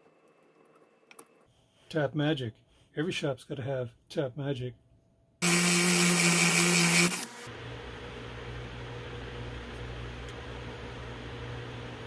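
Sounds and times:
drill cutting threads in steel: 5.4s - 7.5s.

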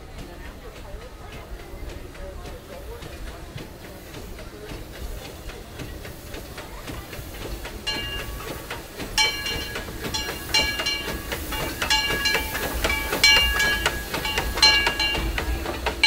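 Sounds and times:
steam locomotive rumbling: 0.0s - 16.0s
wheels clicking on rails: 0.0s - 16.0s
locomotive bell ringing: 7.9s - 16.0s.

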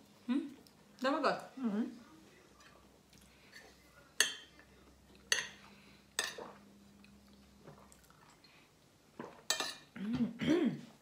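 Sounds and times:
cutlery clinking on plate: 3.6s - 4.6s, 5.2s - 6.6s, 9.2s - 9.9s.

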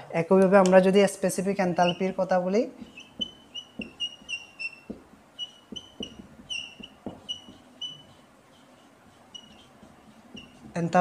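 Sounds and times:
whiteboard marker squeaking: 1.6s - 11.0s
marker tip tapping: 2.8s - 8.6s, 9.2s - 10.8s.

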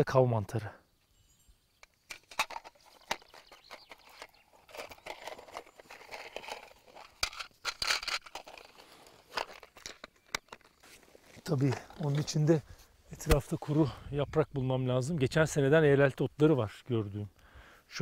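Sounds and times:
rustling and crinkling handling: 2.1s - 13.9s.

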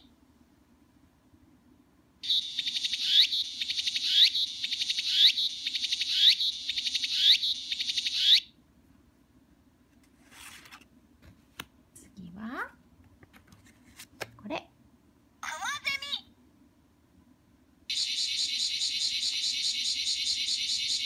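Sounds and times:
cicada song from small speaker: 2.2s - 8.5s, 17.9s - 21.0s.

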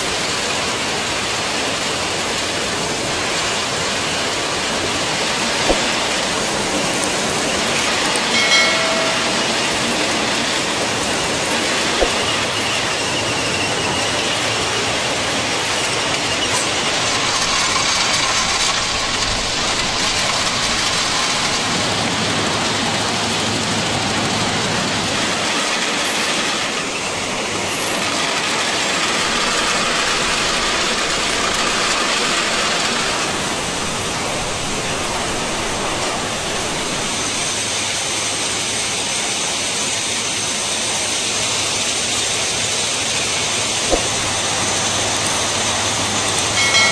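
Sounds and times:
heavy machinery noise: 0.0s - 46.9s
sharp knock: 5.7s - 6.2s, 12.0s - 12.4s, 43.9s - 44.4s
metallic clank with squeal: 7.8s - 14.7s.

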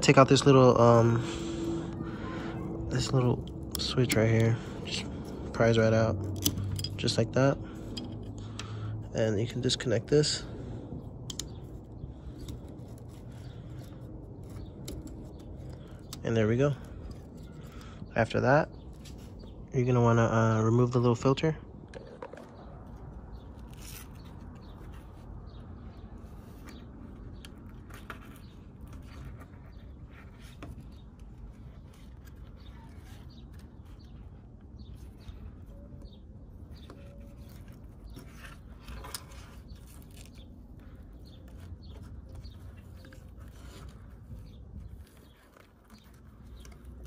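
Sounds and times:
low background rumble: 0.0s - 19.8s
hands clicking and rubbing plastic parts: 11.1s - 16.3s.

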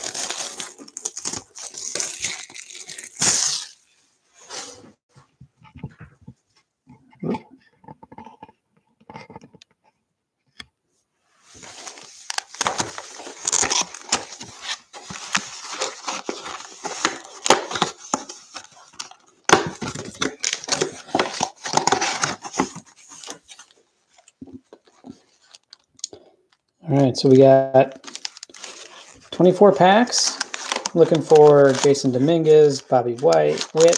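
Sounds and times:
cardboard box opening: 0.0s - 3.8s, 11.6s - 25.7s, 30.3s - 32.0s
plastic wrap crinkling and tearing: 0.0s - 4.7s, 11.5s - 26.1s, 27.9s - 33.9s.

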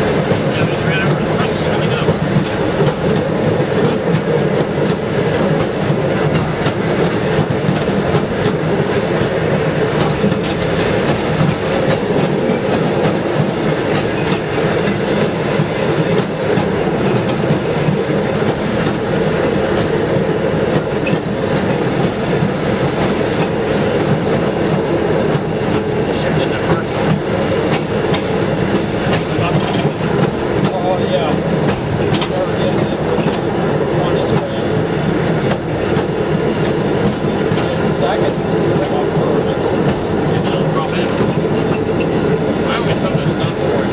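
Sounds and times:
rail car motor running: 0.0s - 43.9s
wheels clicking over rail joints: 25.3s - 33.5s.

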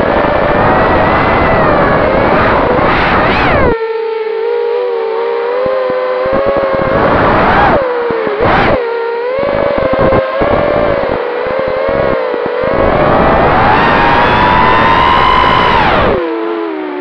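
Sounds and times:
rushing air on microphone: 0.0s - 3.8s, 6.3s - 8.8s, 9.4s - 16.2s
drone motors whining: 0.0s - 17.0s.

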